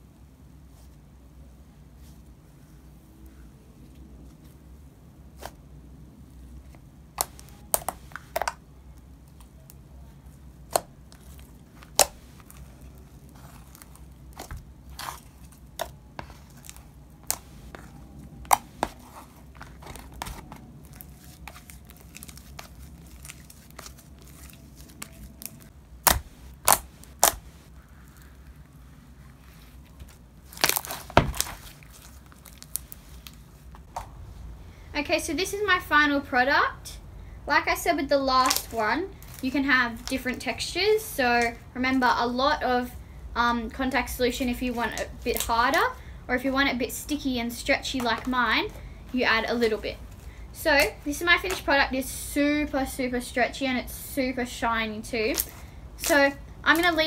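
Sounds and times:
slime clicking and popping: 0:25.0 - 0:27.5.

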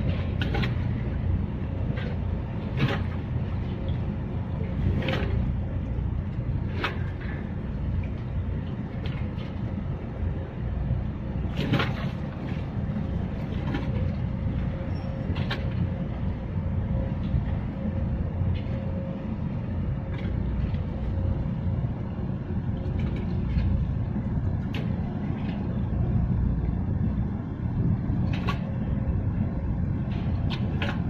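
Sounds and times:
boat engine rumble: 0:00.0 - 0:31.0
faint steady hum: 0:00.0 - 0:31.0.

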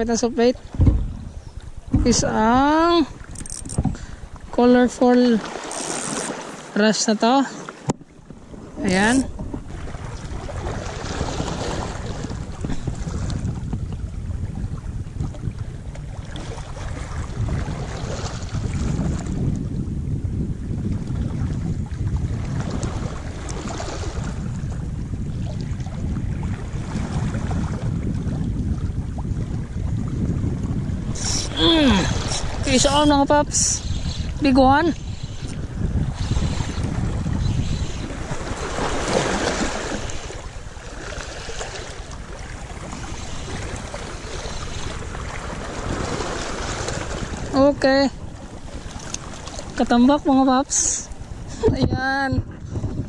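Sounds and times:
wind buffeting microphone: 0:00.0 - 0:06.6, 0:07.8 - 0:53.0
sea water washing over rocks: 0:21.3 - 0:50.0.

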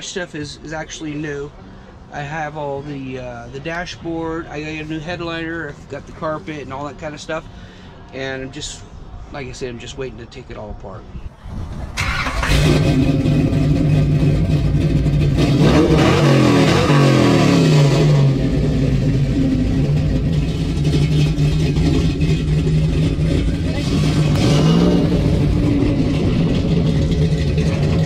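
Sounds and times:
car engine revving and idling: 0:11.4 - 0:28.0.

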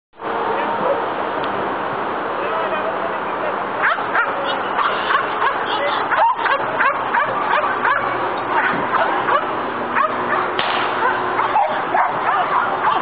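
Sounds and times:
dog yipping and whining: 0:06.1 - 0:10.4, 0:11.0 - 0:13.0.

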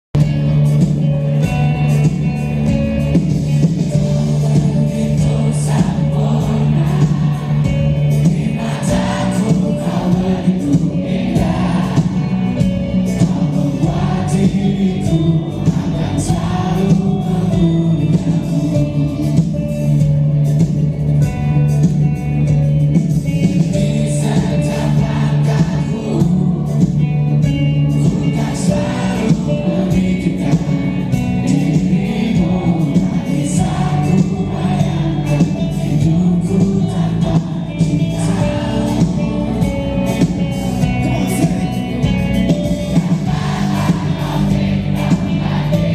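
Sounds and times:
bass guitar: 0:00.1 - 0:45.9
drums: 0:00.1 - 0:45.9
electric guitar: 0:00.2 - 0:45.9
live rock band playing: 0:00.2 - 0:45.9
crowd singing along: 0:03.4 - 0:19.7, 0:23.5 - 0:45.9.

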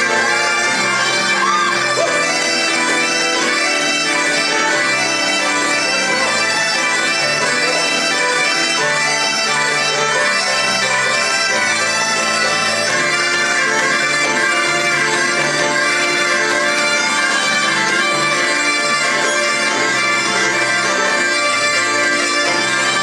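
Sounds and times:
bagpipes playing lively tune: 0:00.0 - 0:23.0
fiddle: 0:00.0 - 0:23.0
keyboard: 0:00.0 - 0:23.0.

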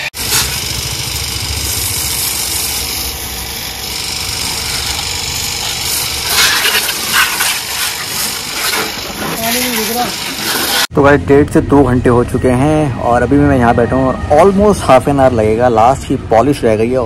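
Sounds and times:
engine running with low pulse: 0:00.0 - 0:09.0
bursts of hissing: 0:00.0 - 0:10.9.

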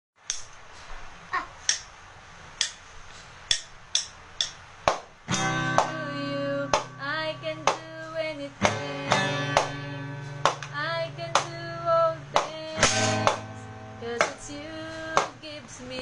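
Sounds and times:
drumsticks striking drums: 0:01.6 - 0:01.9, 0:02.6 - 0:02.8, 0:03.5 - 0:06.0, 0:10.4 - 0:10.8, 0:12.3 - 0:13.6, 0:14.2 - 0:14.5
song with plucked strings: 0:05.3 - 0:15.4.

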